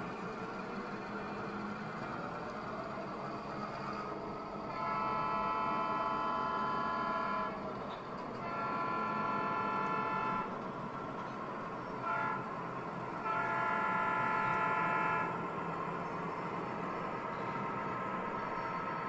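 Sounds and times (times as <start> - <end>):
model locomotive horn blasts: 3.8 - 7.8, 8.4 - 10.6, 11.9 - 15.5.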